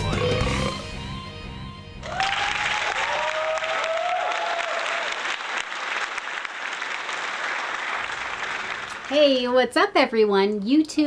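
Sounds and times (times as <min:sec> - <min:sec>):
crowd applauding and cheering: 0:02.0 - 0:09.3.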